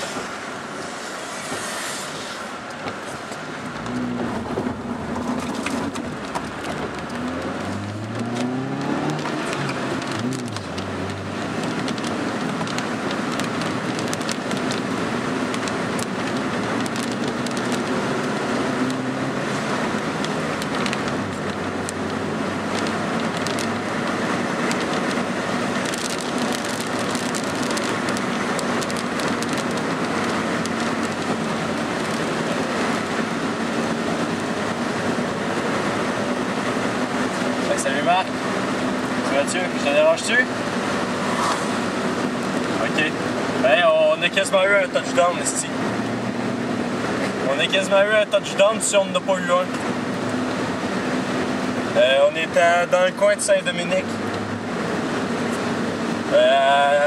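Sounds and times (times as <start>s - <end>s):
tyres hissing on wet road: 0.0s - 4.4s, 18.2s - 46.5s, 47.1s - 57.0s
car engine: 0.0s - 57.0s
rain striking windshield: 2.7s - 57.0s.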